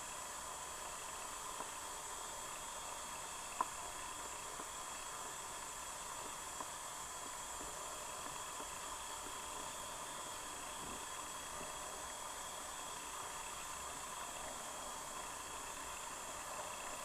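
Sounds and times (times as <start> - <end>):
underwater stream hiss: 0.0 - 17.0
faint clicks: 3.5 - 3.8.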